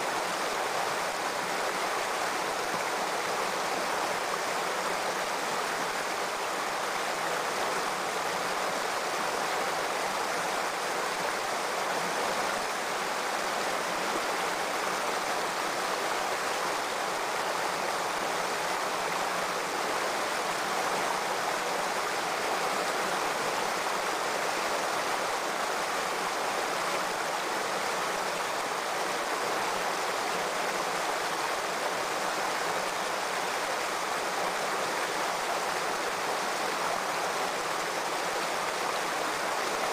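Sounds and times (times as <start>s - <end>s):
stream running over rocks: 0.0s - 39.9s.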